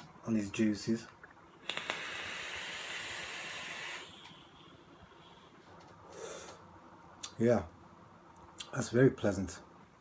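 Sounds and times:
vape drawing hiss: 1.6s - 4.5s
breathy exhale hiss: 1.7s - 4.5s, 6.0s - 6.6s.

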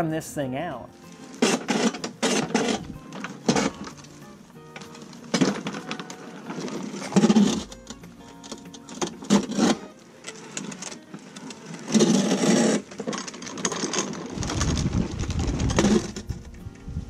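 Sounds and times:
mower deck scraping on concrete: 1.0s - 16.8s
low rumble: 14.4s - 17.0s.

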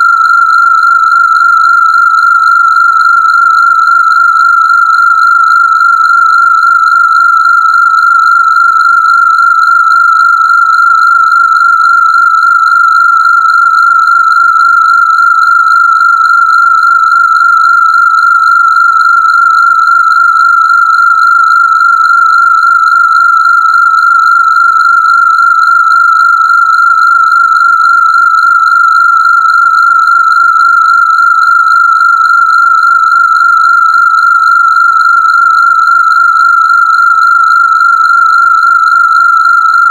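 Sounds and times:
high-pitched electronic tone: 39.1s - 39.9s.

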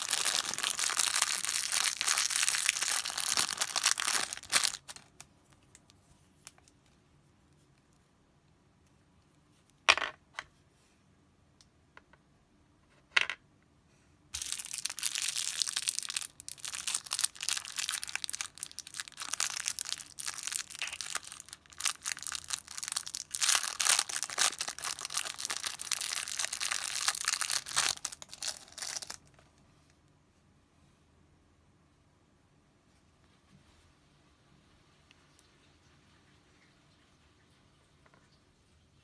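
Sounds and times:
plastic wrapper crinkling and tearing: 0.0s - 6.8s, 14.4s - 29.5s.

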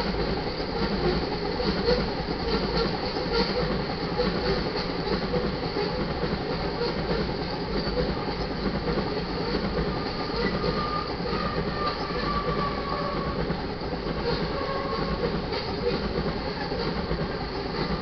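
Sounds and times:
steel wheels rumbling on rail: 0.0s - 18.0s
thin wheel squeal: 10.0s - 13.4s, 14.2s - 15.2s.

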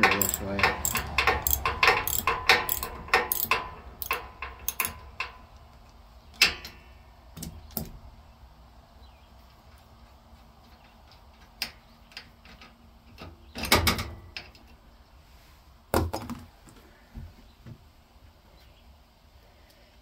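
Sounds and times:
socket ratchet clicking: 0.0s - 5.0s.

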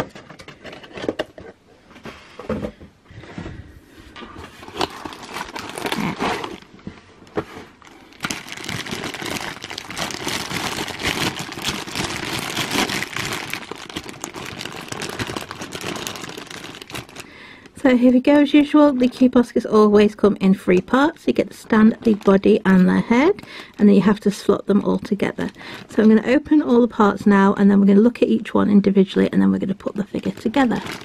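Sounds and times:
cardboard packaging handled: 4.3s - 17.3s, 30.2s - 31.0s
plastic bags crinkling: 4.4s - 17.8s, 20.8s - 26.4s, 30.0s - 31.0s.

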